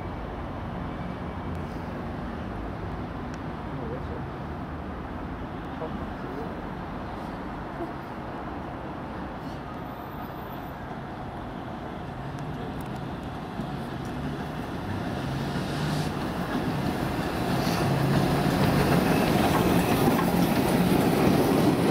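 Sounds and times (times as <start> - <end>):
steam locomotive passing: 11.7 - 21.9.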